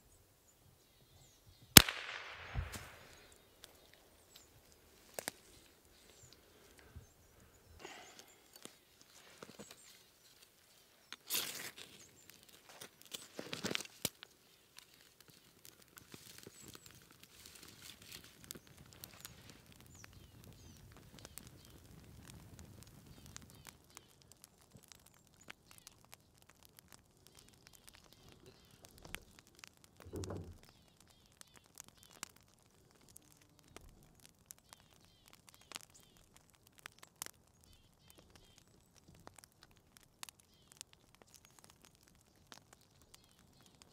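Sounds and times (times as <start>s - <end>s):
faint outdoor sounds: 0.0s - 43.9s
small fire crackling: 0.0s - 43.9s
rustles and snaps: 7.8s - 34.0s.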